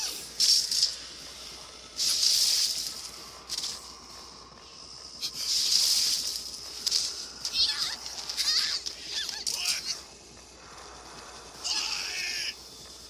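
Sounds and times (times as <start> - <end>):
sharp hissing bursts: 0.0 - 8.5.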